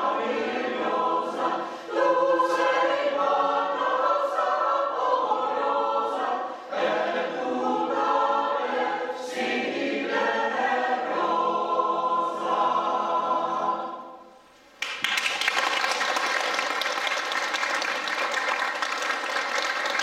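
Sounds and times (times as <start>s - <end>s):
choir singing sustained chords: 0.0s - 14.4s.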